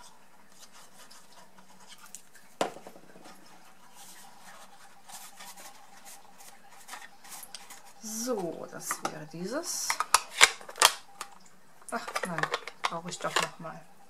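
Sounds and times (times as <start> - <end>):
card stock rustling and scraping: 0.0 - 9.2, 9.8 - 13.5
plastic bottle knocking on mat: 2.6 - 3.3.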